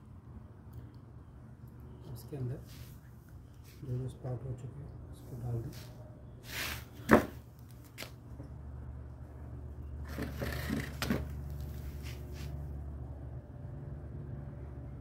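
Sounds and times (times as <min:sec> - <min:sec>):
fingers rustling in potting soil: 0:11.5 - 0:12.6.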